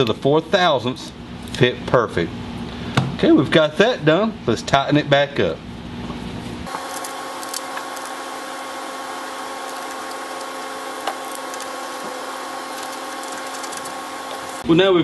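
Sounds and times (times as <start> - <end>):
machine hum with low drone: 5.6 - 14.7.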